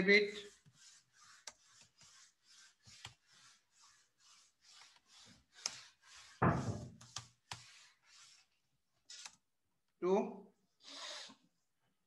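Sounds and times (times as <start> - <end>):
deep thump: 6.4 - 6.9.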